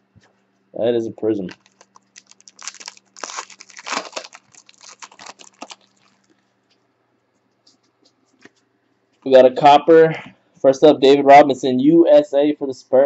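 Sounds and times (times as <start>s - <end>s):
foil wrapper tearing and crinkling: 1.5s - 6.3s.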